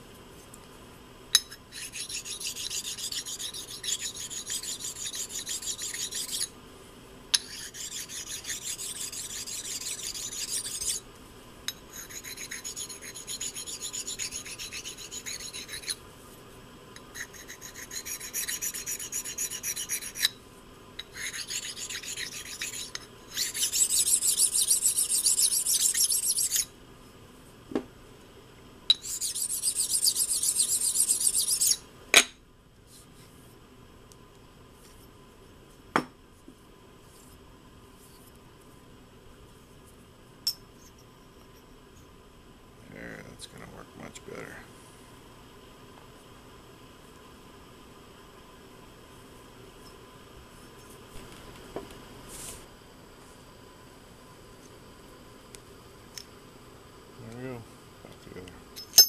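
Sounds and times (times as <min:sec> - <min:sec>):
sharpening stone rubbing on steel: 0:01.4 - 0:06.5, 0:07.4 - 0:11.0, 0:11.9 - 0:16.0, 0:17.0 - 0:20.4, 0:21.0 - 0:26.7, 0:28.9 - 0:31.8.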